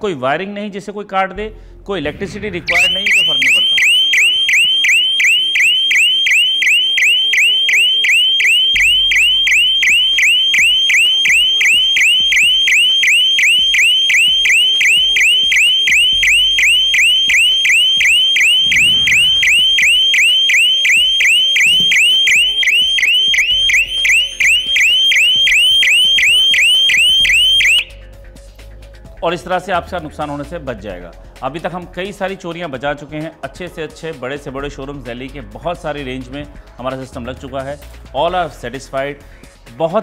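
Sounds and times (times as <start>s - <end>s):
electronic alarm siren: 2.6s - 28.0s.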